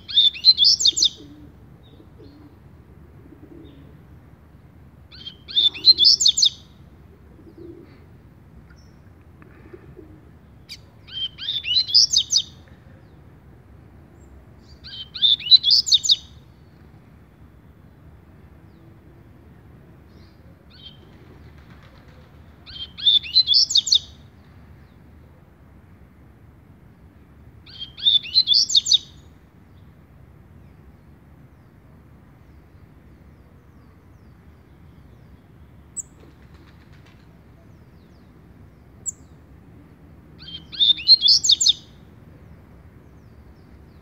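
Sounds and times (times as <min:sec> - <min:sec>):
bird singing high phrases: 0:00.0 - 0:01.3, 0:05.1 - 0:06.8, 0:10.6 - 0:12.7, 0:14.2 - 0:16.8, 0:22.7 - 0:24.2, 0:27.6 - 0:29.8, 0:40.4 - 0:42.0.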